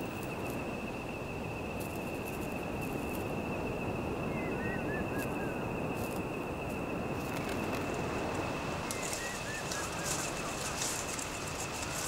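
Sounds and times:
high-pitched insect trill: 0:00.0 - 0:12.0
small bird chirping: 0:08.9 - 0:12.0.

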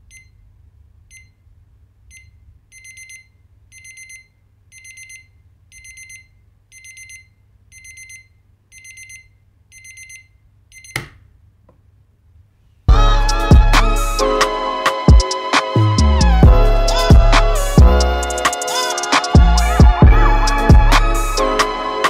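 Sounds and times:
digital alarm clock beeping: 0:00.1 - 0:00.4, 0:01.1 - 0:01.4, 0:02.1 - 0:11.0.

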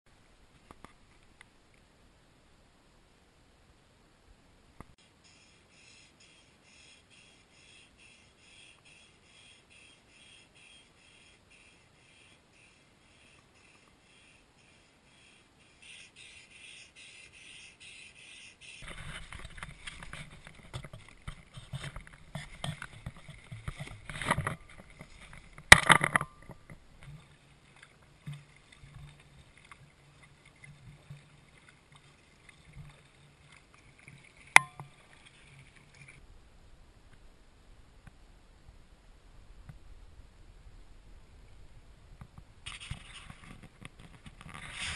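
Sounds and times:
faint steady low hum: 0:00.1 - 0:44.5
camera handling rustling and knocking: 0:18.8 - 0:26.8.

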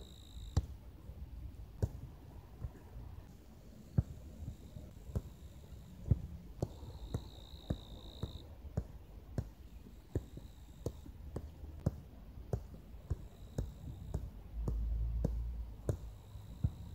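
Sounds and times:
crickets ringing: 0:00.0 - 0:00.6, 0:06.8 - 0:08.4
foot tapping football: 0:01.8 - 0:02.8, 0:04.0 - 0:05.4, 0:06.0 - 0:16.9.

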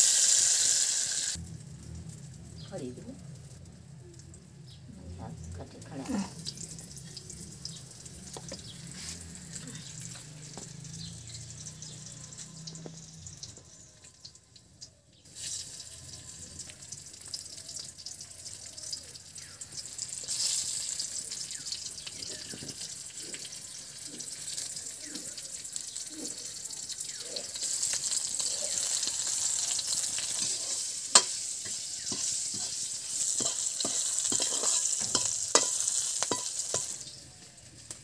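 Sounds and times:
twig fire hissing and crackling: 0:00.0 - 0:04.4, 0:05.9 - 0:10.6, 0:15.2 - 0:38.0.

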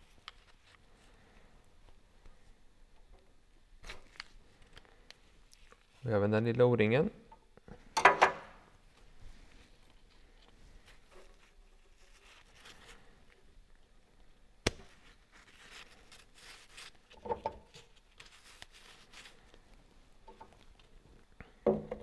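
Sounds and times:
gloved hands rustling: 0:00.0 - 0:02.7, 0:08.8 - 0:21.3.

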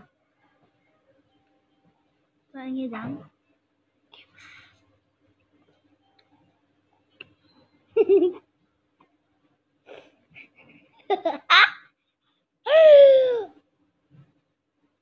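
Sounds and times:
girls laughing and giggling: 0:08.0 - 0:08.4.

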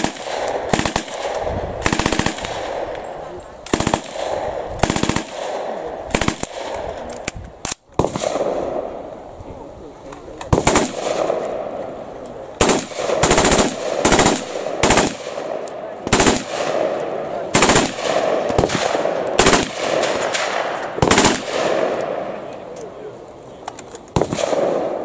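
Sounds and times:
rifle firing automatic bursts: 0:00.0 - 0:02.9, 0:03.7 - 0:06.7, 0:10.5 - 0:11.4, 0:12.6 - 0:22.0.

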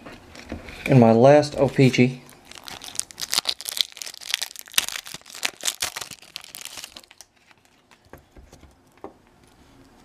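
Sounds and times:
foil wrapper crinkling and tearing: 0:02.3 - 0:08.0.

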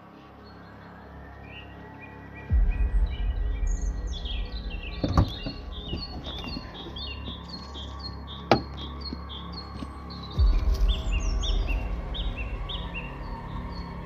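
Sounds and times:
small birds chirping: 0:00.0 - 0:14.0
low rumble: 0:02.5 - 0:07.2, 0:10.4 - 0:14.0.

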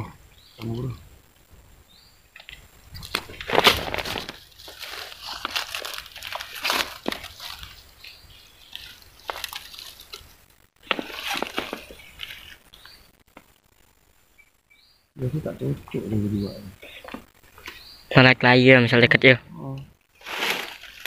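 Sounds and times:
rustling in dry leaves: 0:02.4 - 0:13.1, 0:20.1 - 0:21.0.

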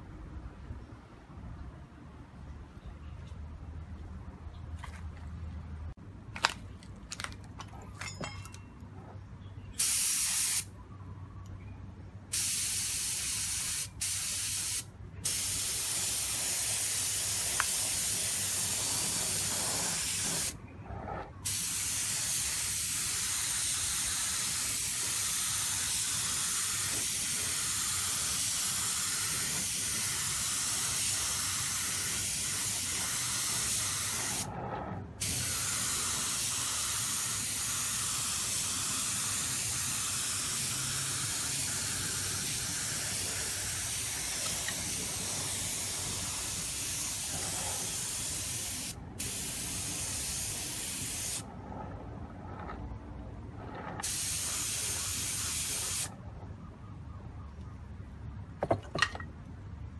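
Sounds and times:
spray gun hissing: 0:09.8 - 0:10.7, 0:12.3 - 0:20.6, 0:21.4 - 0:34.5, 0:35.2 - 0:51.4, 0:54.0 - 0:56.1.

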